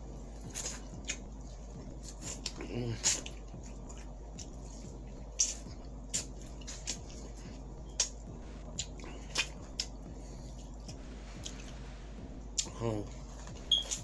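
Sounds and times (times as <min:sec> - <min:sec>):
person chewing and smacking: 0:00.0 - 0:11.8, 0:12.5 - 0:14.0
faint low hum: 0:00.0 - 0:14.0.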